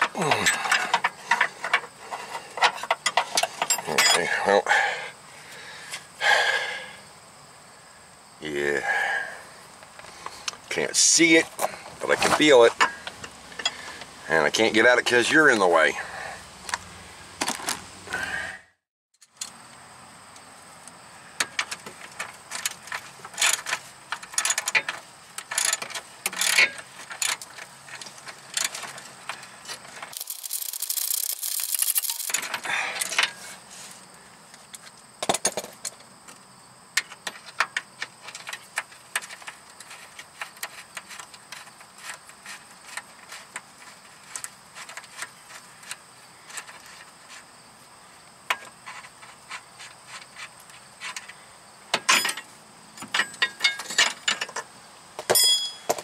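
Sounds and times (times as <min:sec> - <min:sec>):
metal tools clinking: 0:00.0 - 0:01.9, 0:02.6 - 0:04.5, 0:29.7 - 0:33.5, 0:51.9 - 0:54.6, 0:55.2 - 0:56.0
ratchet wrench clicking: 0:30.1 - 0:32.5.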